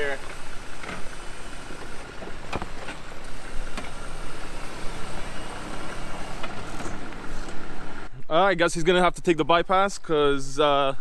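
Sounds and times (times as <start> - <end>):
car engine running: 0.0 - 8.1.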